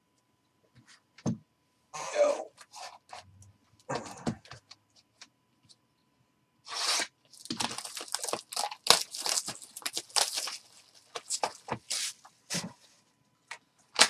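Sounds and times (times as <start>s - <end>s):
plastic wrapper tearing and crinkling: 6.7s - 12.0s.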